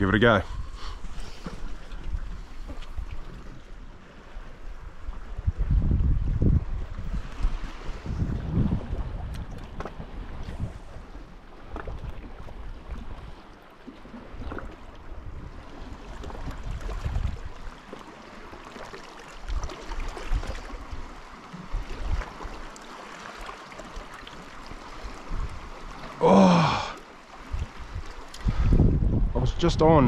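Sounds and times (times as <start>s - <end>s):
water lapping against rocks: 0.6s - 29.2s
wind buffeting microphone: 4.6s - 13.4s, 14.4s - 17.7s, 25.0s - 25.8s, 27.4s - 30.0s.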